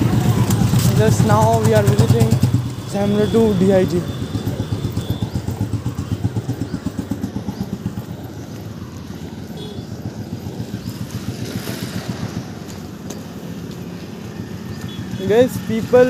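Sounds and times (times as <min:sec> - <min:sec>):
motorcycle engine rumbling: 0:00.0 - 0:16.0
road and wind noise: 0:00.0 - 0:16.0
motorcycle passing close by: 0:04.1 - 0:16.0.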